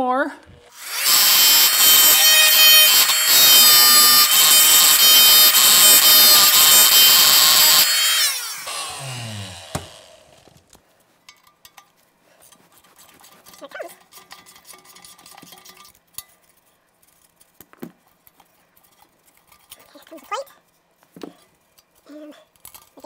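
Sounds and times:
multi-tool winding down whine: 0:00.6 - 0:10.6
metal clinks and taps: 0:11.3 - 0:12.0.

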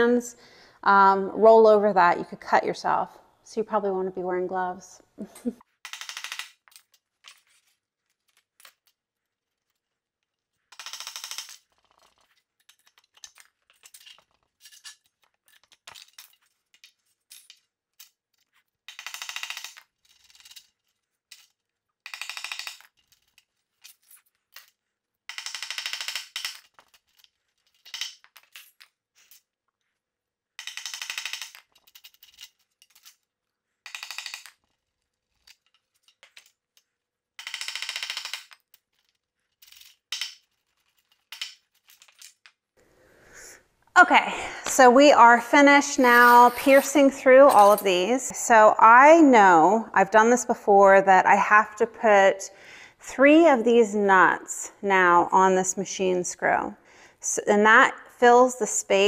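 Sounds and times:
small clinks and knocks: 0:30.6 - 0:42.6.

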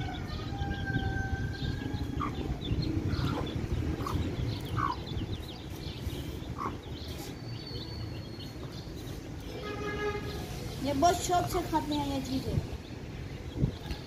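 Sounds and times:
chicks peeping: 0:00.0 - 0:09.6.

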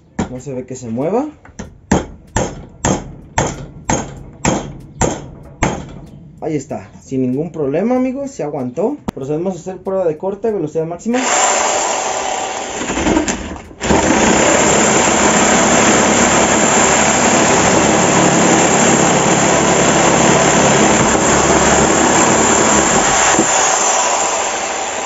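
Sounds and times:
power tool cutting: 0:11.1 - 0:25.0.

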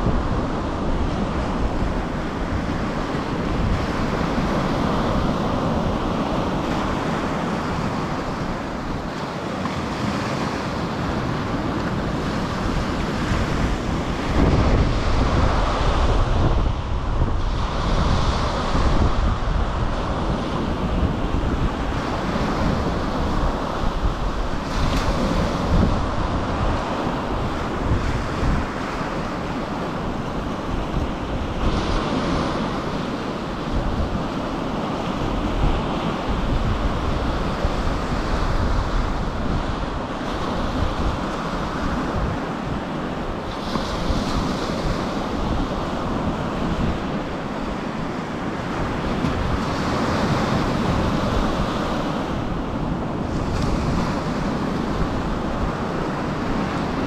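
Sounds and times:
surf washing up a beach: 0:00.0 - 0:57.0
wind buffeting microphone: 0:00.0 - 0:57.0.

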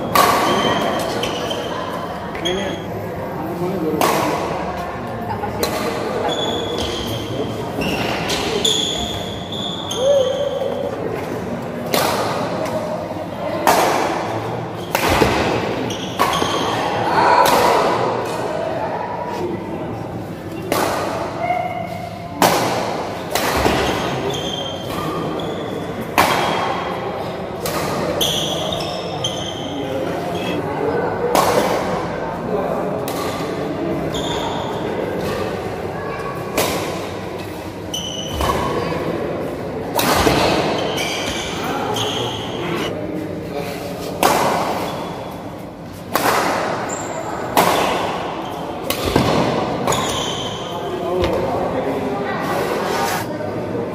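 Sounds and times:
rackets hitting shuttlecock: 0:00.0 - 0:01.4, 0:04.0 - 0:04.7, 0:05.5 - 0:07.3, 0:11.2 - 0:12.9, 0:13.6 - 0:18.5, 0:20.6 - 0:21.4, 0:22.4 - 0:25.4, 0:26.0 - 0:27.0, 0:27.6 - 0:30.2, 0:31.2 - 0:32.1, 0:39.9 - 0:42.5, 0:46.1 - 0:50.6
shoes squeaking on floor: 0:00.5 - 0:02.9, 0:06.2 - 0:10.6, 0:23.9 - 0:25.9, 0:28.2 - 0:30.6, 0:34.0 - 0:34.8, 0:37.9 - 0:38.7, 0:40.7 - 0:42.9, 0:49.9 - 0:50.7.

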